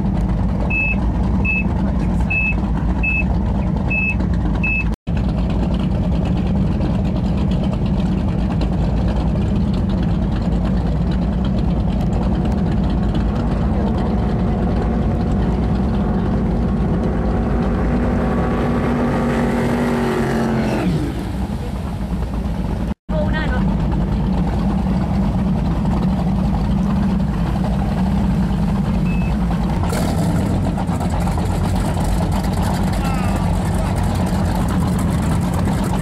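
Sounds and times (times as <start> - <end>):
powerboat engines passing: 0.0 - 36.0
short high beeps: 0.7 - 1.7, 2.3 - 3.3, 29.1 - 29.4.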